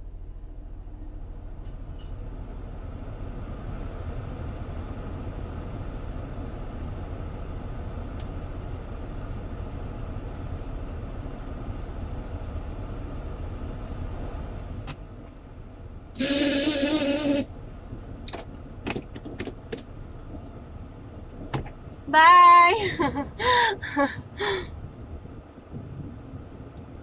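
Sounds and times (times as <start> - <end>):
car cabin rumble: 0.0 - 27.0.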